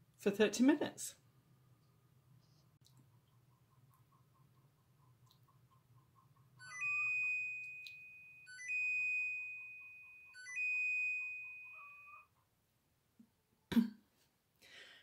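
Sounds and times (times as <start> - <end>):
air fryer alert chimes: 6.6 - 12.3.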